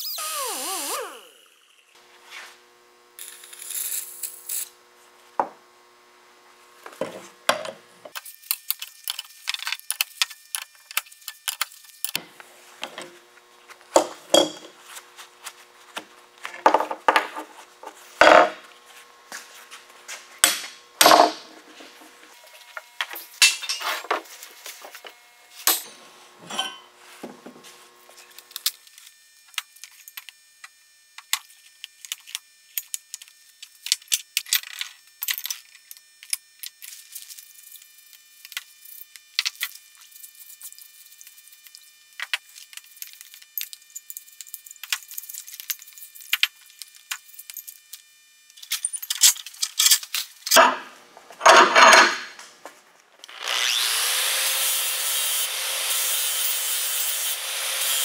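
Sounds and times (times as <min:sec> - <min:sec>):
iron parts clanking on workbench: 0:14.0 - 0:14.7, 0:23.4 - 0:24.0, 0:25.6 - 0:26.9, 0:49.0 - 0:52.4.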